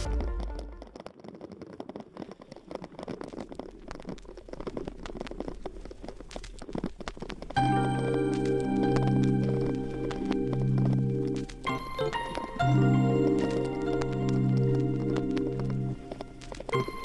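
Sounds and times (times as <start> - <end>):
music: 0.0 - 0.9, 7.6 - 17.0.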